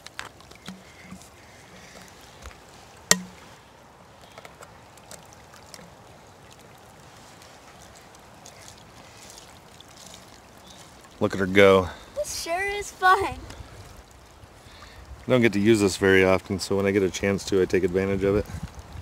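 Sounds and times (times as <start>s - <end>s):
stream trickling over rocks: 0.0s - 19.0s
sharp knock: 3.1s - 3.4s.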